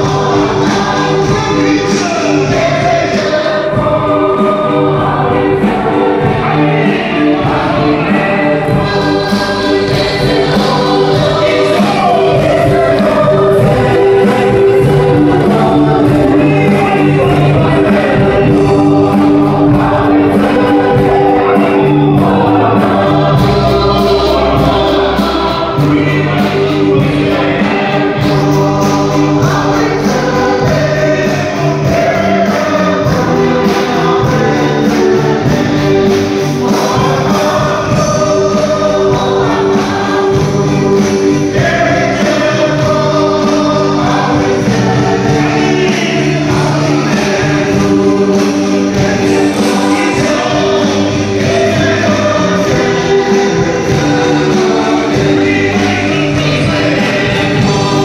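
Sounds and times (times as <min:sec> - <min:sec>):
choir singing a gospel hymn: 0:00.0 - 0:58.0.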